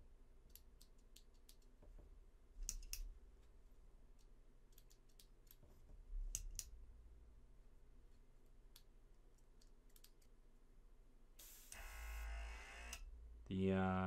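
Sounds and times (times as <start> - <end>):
small compressor humming: 11.4 - 13.0.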